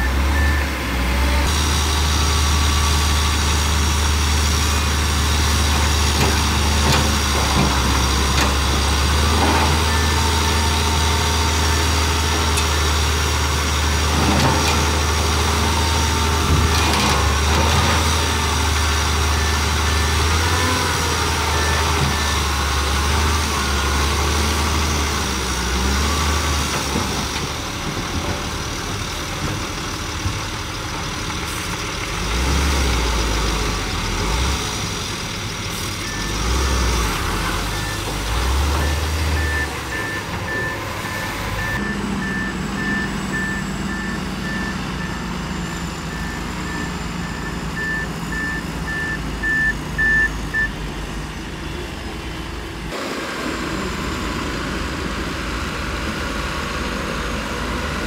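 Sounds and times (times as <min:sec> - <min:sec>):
reversing alarm beeping: 0:00.0 - 0:00.8, 0:09.3 - 0:12.4, 0:36.0 - 0:51.4
bulldozer diesel engine rumbling: 0:00.0 - 0:58.0.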